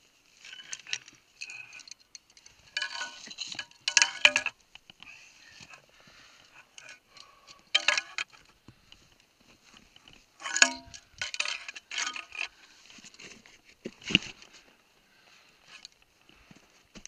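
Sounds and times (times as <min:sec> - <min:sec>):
metal climbing gear clinking on rock: 0:00.3 - 0:13.4.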